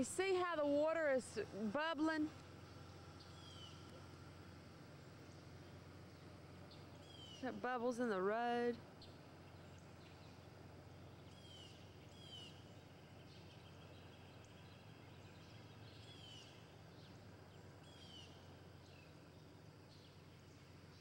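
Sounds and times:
low steady hum: 0.0s - 21.0s
birds whistling and chirping: 2.6s - 3.9s, 5.2s - 7.5s, 8.9s - 21.0s.

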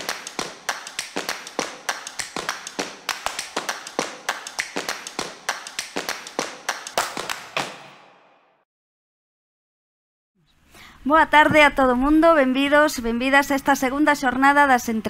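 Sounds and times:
rhythmic claps and taps: 0.0s - 8.1s.

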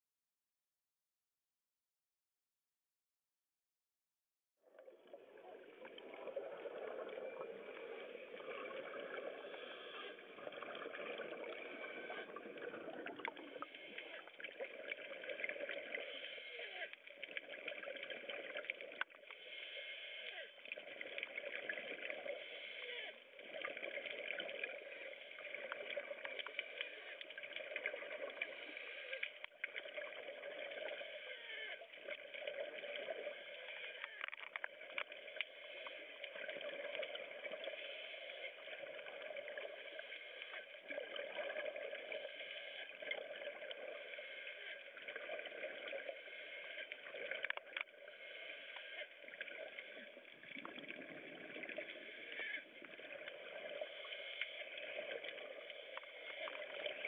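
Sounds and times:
gurgling rush of bubbles: 4.9s - 16.1s, 49.3s - 53.9s.

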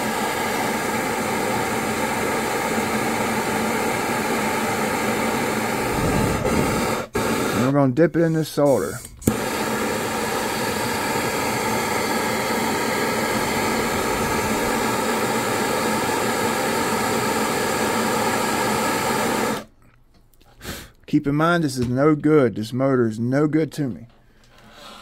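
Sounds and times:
gas torch flame hissing: 0.0s - 19.7s.

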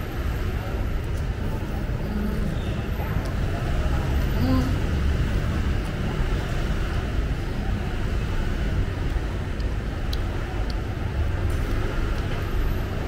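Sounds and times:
street traffic rumble: 0.0s - 13.0s
faint clicks: 9.0s - 10.9s.

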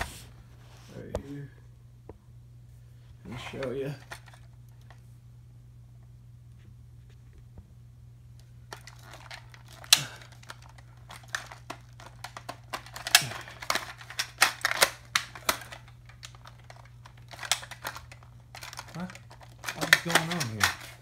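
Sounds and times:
toy blaster plastic clicks and rattles: 8.7s - 21.0s.

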